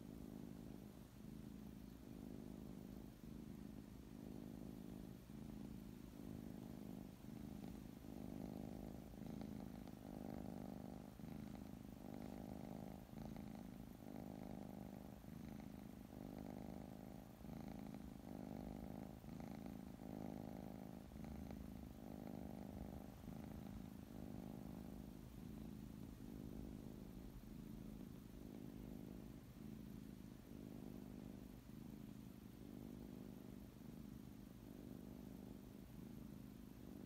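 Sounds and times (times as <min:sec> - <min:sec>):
cat purring: 0:00.0 - 0:37.0.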